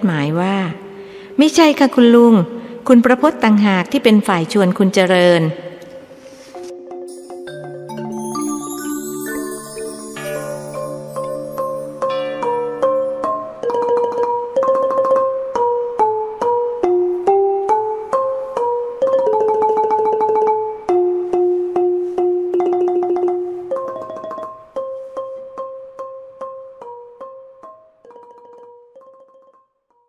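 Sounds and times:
slow melody of struck notes: 5.8s - 19.8s.

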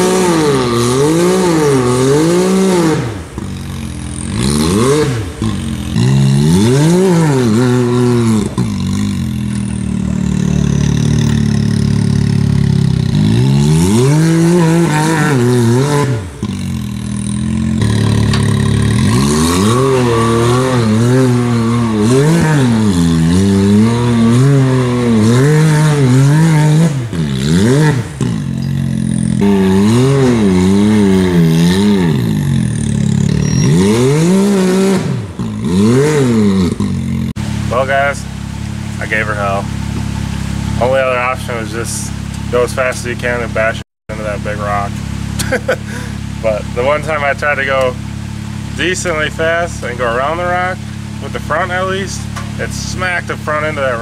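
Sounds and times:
engine revving: 0.0s - 54.0s.

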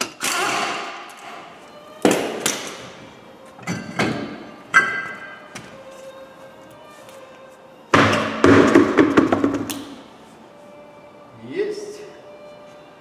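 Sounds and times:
metallic knocks and clanks: 3.6s - 5.7s.

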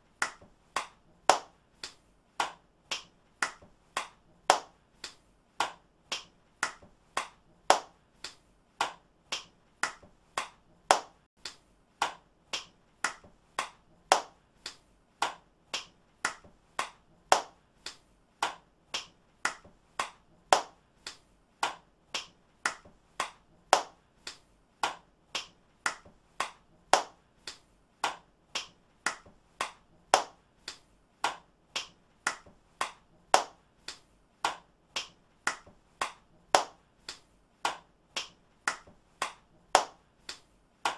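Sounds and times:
person clapping hands: 0.0s - 40.9s.

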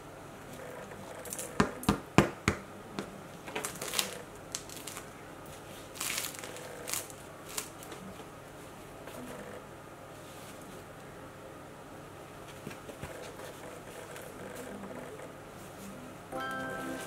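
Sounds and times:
parchment paper crinkling: 3.5s - 8.2s.

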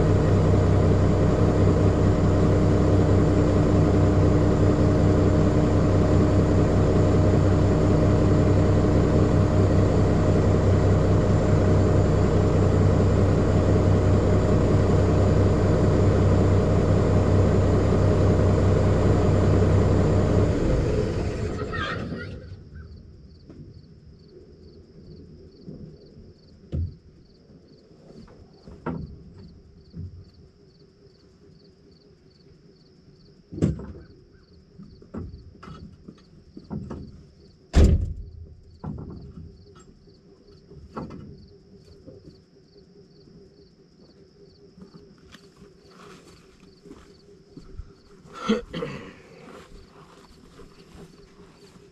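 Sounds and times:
metal clunks and knocks: 35.0s - 37.2s, 37.8s - 40.0s, 40.8s - 41.4s.

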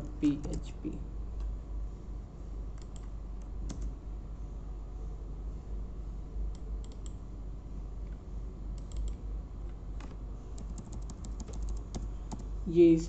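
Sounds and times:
steady low hum: 0.0s - 13.0s
keyboard keys clicking: 8.8s - 9.2s, 10.0s - 12.5s.

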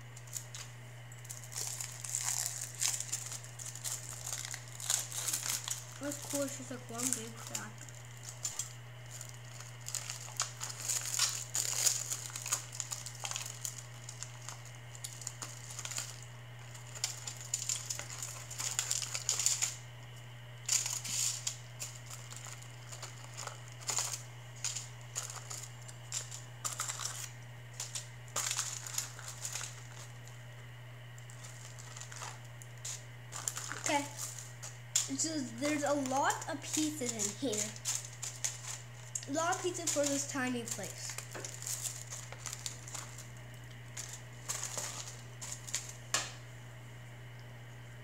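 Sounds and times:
plastic pouch crinkling: 0.0s - 46.4s
low steady hum: 0.0s - 48.0s.

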